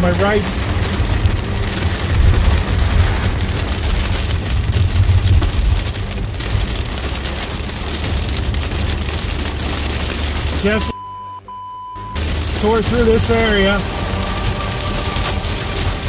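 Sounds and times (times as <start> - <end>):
heavy rain on car windshield: 0.0 - 10.9, 12.2 - 16.0
tyres rumbling on wet road: 0.0 - 10.9, 12.2 - 16.0.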